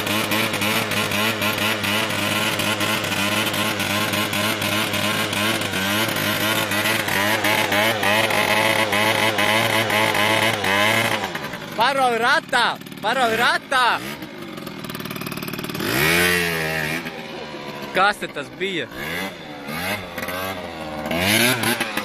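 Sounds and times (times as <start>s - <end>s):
scooter engine revving: 0.0s - 22.0s.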